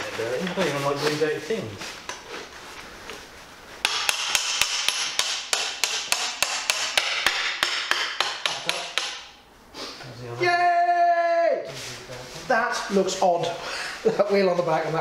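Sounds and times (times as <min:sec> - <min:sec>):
hammer tapping metal: 0:03.8 - 0:09.4.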